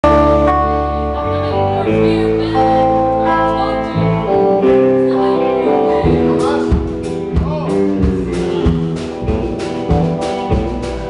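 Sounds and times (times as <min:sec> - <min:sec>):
country-rock band playing: 0:00.0 - 0:11.0
sliding lead guitar notes: 0:00.0 - 0:11.0.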